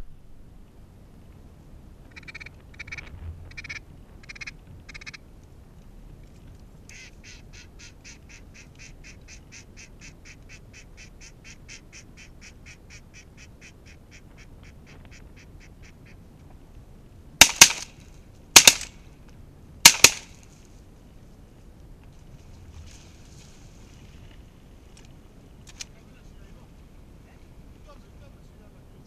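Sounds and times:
duck calls: 2.1s - 5.2s, 6.9s - 16.2s
shotgun shots: 17.4s - 18.0s, 18.6s - 19.0s, 19.8s - 20.4s.

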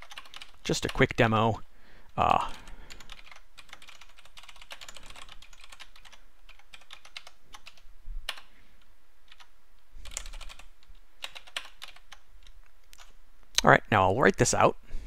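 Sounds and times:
typing on a keyboard: 0.0s - 1.0s, 2.9s - 8.5s, 9.3s - 13.2s.

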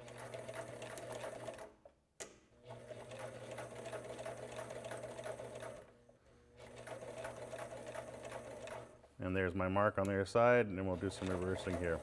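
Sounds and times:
sewing machine stitching: 0.0s - 1.8s, 2.7s - 6.0s, 6.6s - 9.0s, 10.9s - 12.0s.

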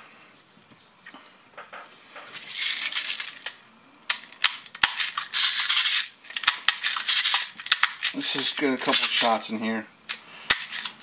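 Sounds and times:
rattle of plastic pellets: 2.4s - 3.6s, 4.3s - 9.5s.

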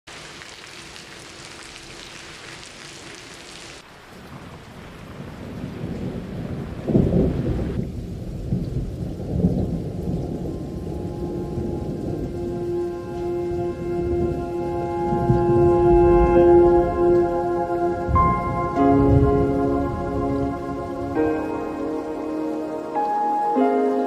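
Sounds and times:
steady rain hiss: 0.1s - 24.0s
thunder rumbling: 4.1s - 23.2s
low held note: 10.8s - 24.0s.

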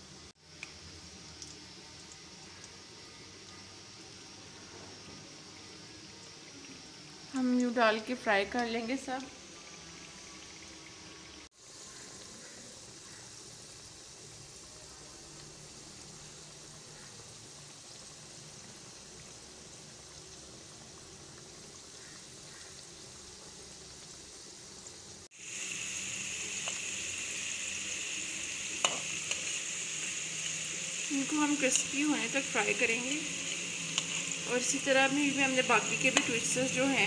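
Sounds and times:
deep-frying sizzle in oil: 0.0s - 37.0s
spatula clinking: 32.7s - 34.9s.

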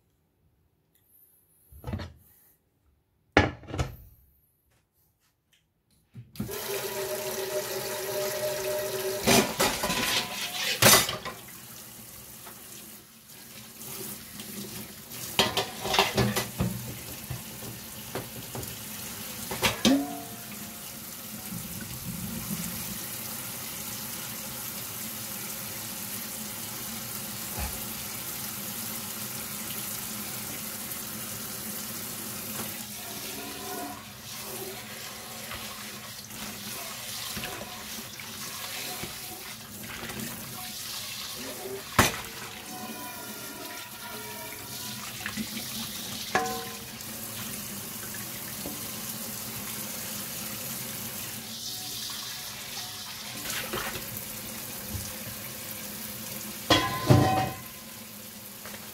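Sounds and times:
kitchenware knocks and clatters: 3.3s - 4.1s, 9.2s - 11.5s, 15.4s - 18.8s, 19.5s - 20.4s, 46.3s - 46.9s, 56.7s - 57.8s.

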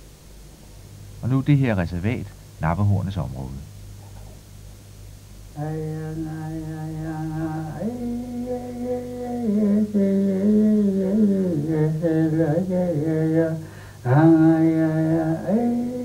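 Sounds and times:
person chanting: 5.6s - 16.0s.

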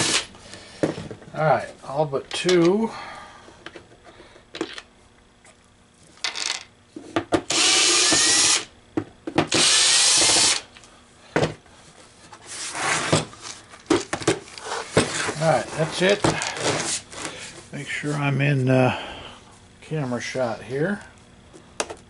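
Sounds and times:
cordless drill spinning: 7.5s - 8.7s, 9.5s - 10.6s
knocks and clatter of handling: 13.2s - 15.4s.

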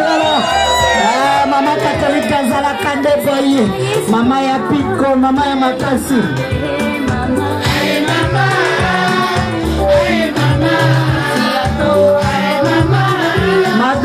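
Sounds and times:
amplified dance music: 0.0s - 14.0s
woman singing into microphone: 2.9s - 14.0s.

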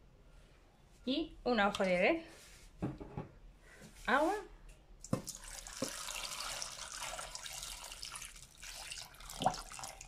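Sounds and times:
thump: 2.8s - 3.3s
water pouring into pot: 5.1s - 10.0s.

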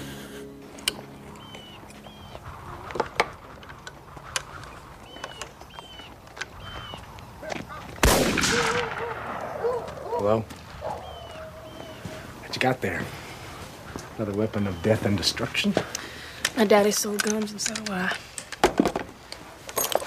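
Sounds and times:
loud gunshot: 8.0s - 9.6s
sharp clicks: 15.9s - 18.6s.

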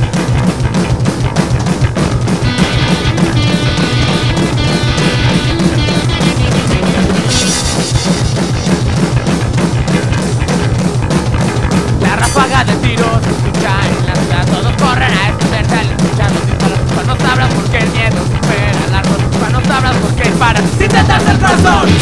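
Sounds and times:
punk rock band playing: 0.0s - 22.0s
wavering lead melody: 2.4s - 9.2s.

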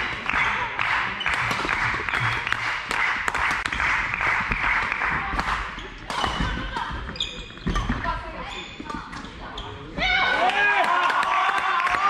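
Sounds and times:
audience applauding: 0.0s - 5.2s, 10.4s - 12.0s.

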